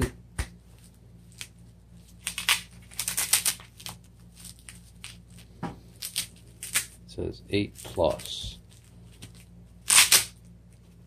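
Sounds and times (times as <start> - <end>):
hook-and-loop strap ripping: 9.2 - 10.4.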